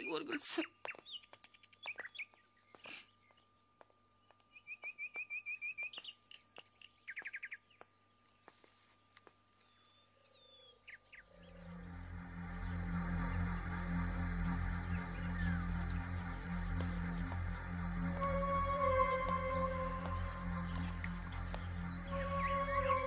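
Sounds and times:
birds chirping: 0.0 - 23.0
bird trill: 4.5 - 7.8, 9.7 - 23.0.

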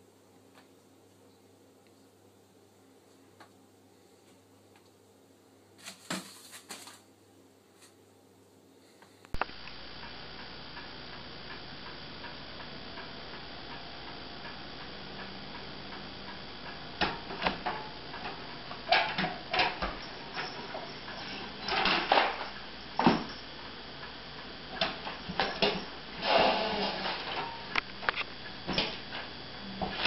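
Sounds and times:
letters dropping on floor: 5.8 - 7.1.

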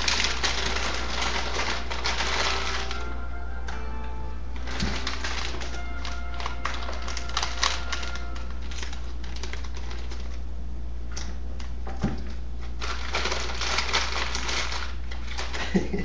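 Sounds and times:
wrapping paper crinkling: 0.0 - 3.3, 4.6 - 10.5, 12.6 - 16.0
steady low hum: 0.0 - 16.0.

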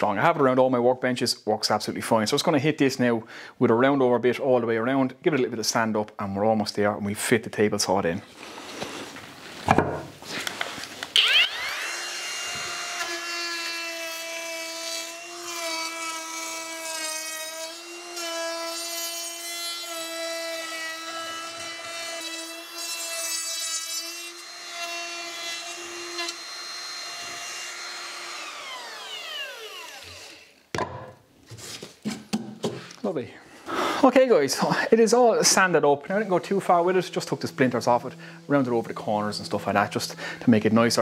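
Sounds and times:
router high whine cutting wood: 11.1 - 17.0, 24.3 - 30.5.

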